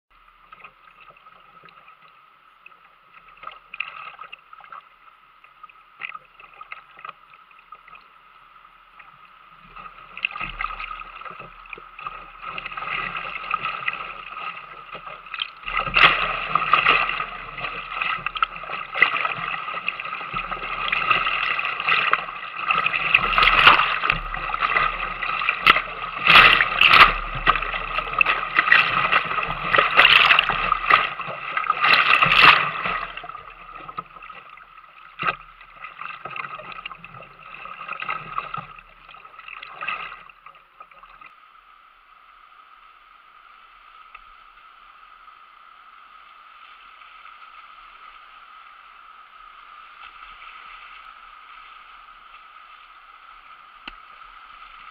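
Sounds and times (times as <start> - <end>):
paddle strokes: 9.0 - 41.3
water hitting boat deck: 10.2 - 34.6.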